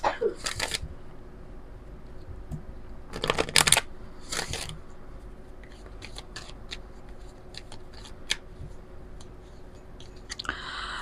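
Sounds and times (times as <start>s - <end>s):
cards sliding and rustling: 0.4s - 0.9s, 3.2s - 4.8s, 5.6s - 10.4s.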